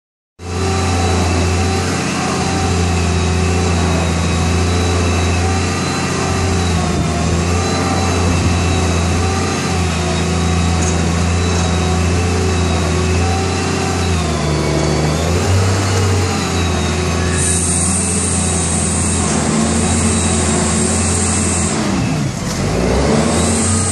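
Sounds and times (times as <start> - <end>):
crane engine running: 0.4 - 23.9.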